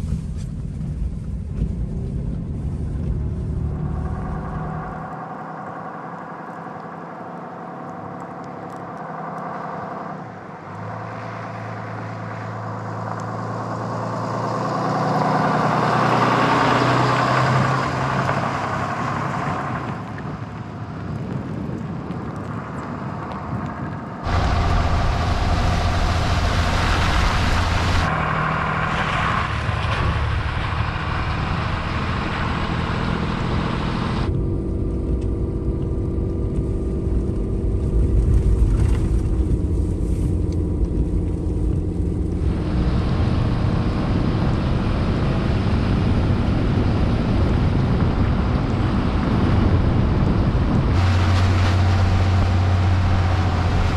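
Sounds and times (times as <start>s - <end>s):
truck engine and tyres: 0.0s - 53.9s
wind on microphone: 16.3s - 53.9s.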